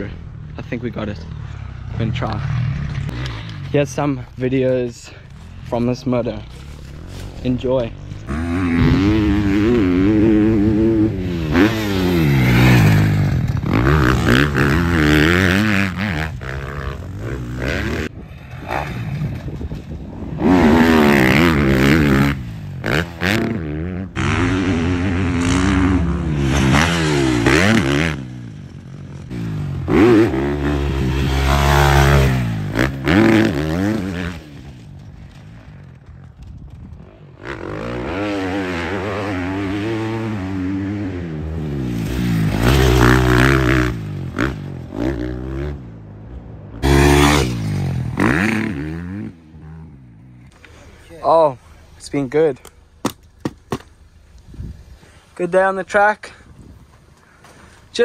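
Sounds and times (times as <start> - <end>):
motocross bike engine revving: 5.7 - 19.6, 20.3 - 34.9, 37.4 - 46.1, 46.8 - 50.7.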